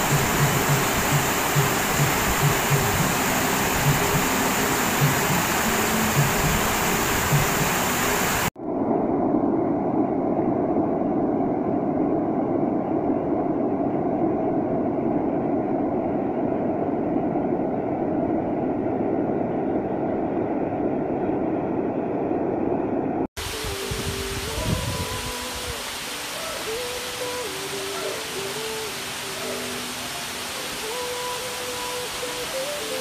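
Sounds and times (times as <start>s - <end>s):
waterfall rushing into pool: 0.0s - 8.6s, 23.4s - 33.0s.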